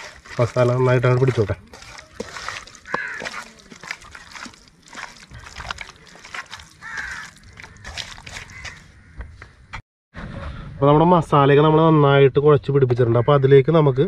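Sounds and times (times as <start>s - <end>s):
hand kneading wet meat: 0.0s - 8.9s.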